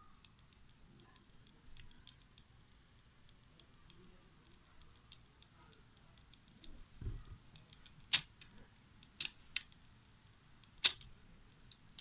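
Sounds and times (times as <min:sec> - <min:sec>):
dull low thump: 0:07.0 - 0:07.4.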